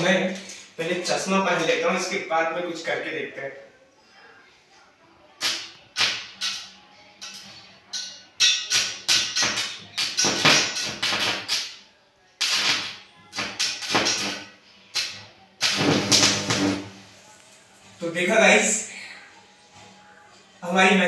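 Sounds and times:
electric arc crackling: 0:09.4 - 0:11.8, 0:12.4 - 0:17.0.

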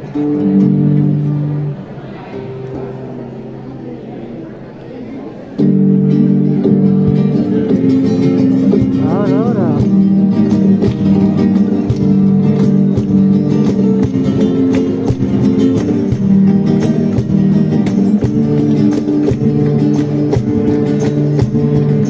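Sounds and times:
flamenco guitars strumming: 0:00.0 - 0:03.8, 0:05.5 - 0:22.0
hand claps: 0:09.1 - 0:22.0.

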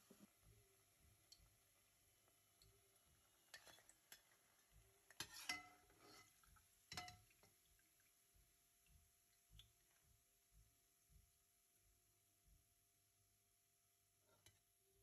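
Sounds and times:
metal skimmer clinking on pot: 0:05.1 - 0:06.3, 0:06.9 - 0:07.5.

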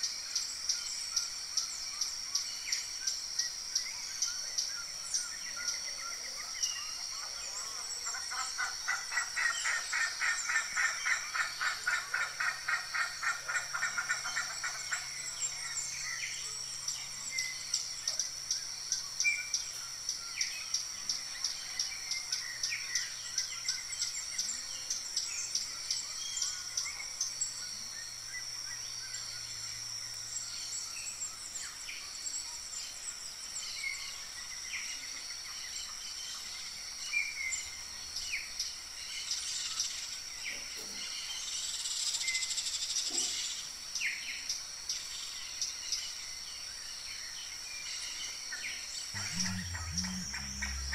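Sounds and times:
fast-pulsing trill: 0:49.2 - 0:50.9
high-pitched insect chirring: 0:49.2 - 0:50.9
short bird chirps: 0:49.2 - 0:50.9.

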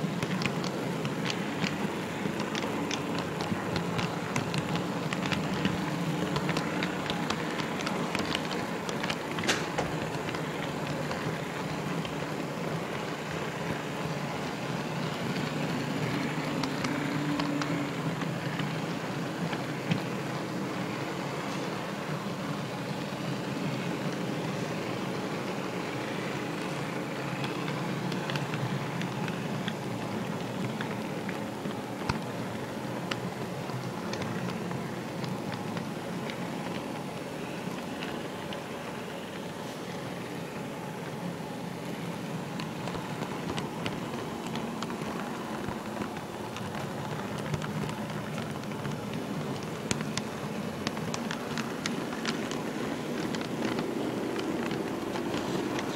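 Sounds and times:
rail joint clicks: 0:00.0 - 0:41.2
model train wheels rumbling on rails: 0:00.0 - 0:55.9.

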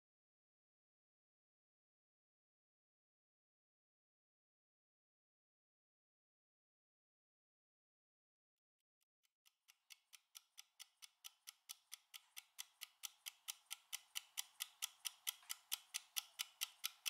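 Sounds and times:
countdown timer ticking: 0:10.3 - 0:17.0.

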